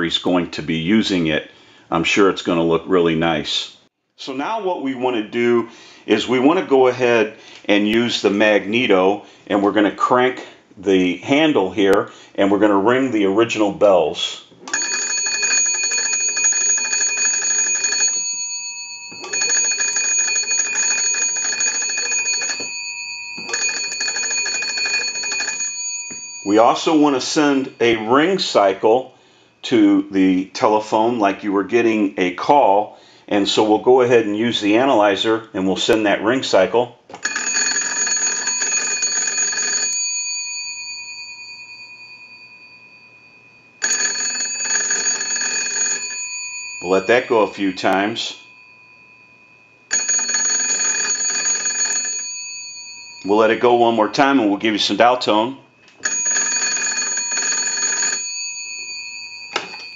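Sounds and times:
crank telephone bells ringing: 14.7 - 28.4, 37.2 - 54.3, 56.0 - 59.9.

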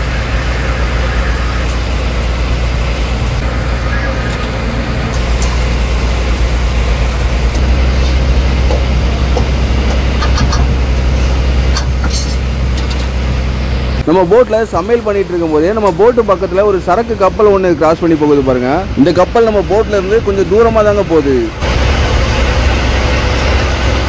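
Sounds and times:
boat engine rumbling: 0.0 - 24.0.

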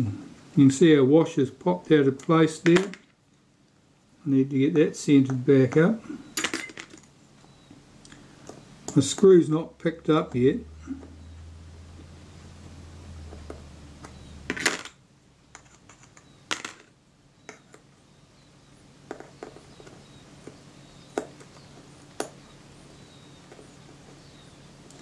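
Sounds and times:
low hum: 7.4 - 17.4.

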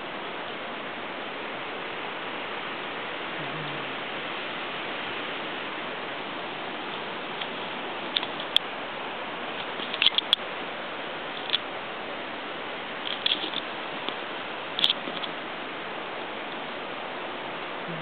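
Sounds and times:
steady hiss: 0.0 - 18.0
light sharp clicks and taps: 6.9 - 8.7, 14.8 - 15.4.

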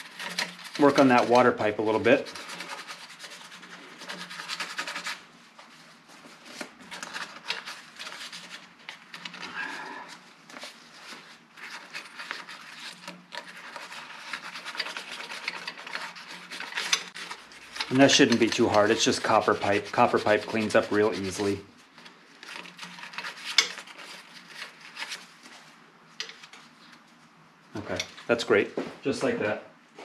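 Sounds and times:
emery cloth rubbing metal tube: 13.4 - 21.6.

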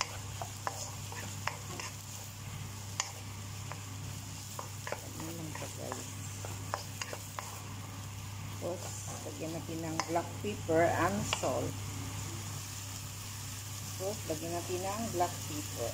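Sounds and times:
wooden spatula scraping wok: 0.0 - 7.7, 8.6 - 10.2
faint frying sizzle: 0.0 - 15.9
steady low hum: 0.0 - 15.9.

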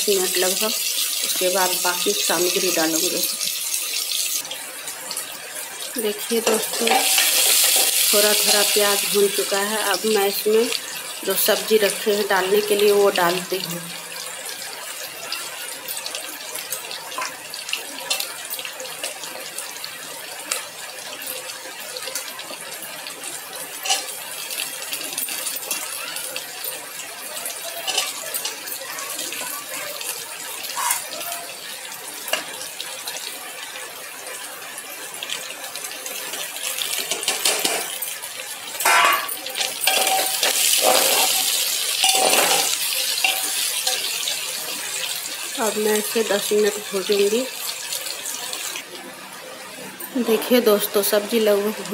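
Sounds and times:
vegetables sizzling in hot fat: 0.0 - 51.9
spatula scraping a metal pot: 38.8 - 44.0.

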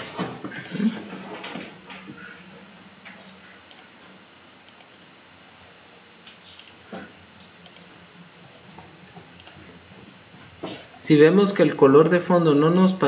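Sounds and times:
computer mouse clicks: 3.7 - 3.9, 4.7 - 5.1, 6.6 - 6.8, 7.6 - 7.9, 9.4 - 10.2.

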